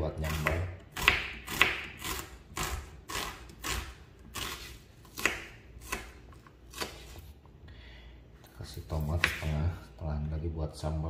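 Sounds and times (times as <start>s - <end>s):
knife slicing onion on wooden board: 0.2s - 7.3s.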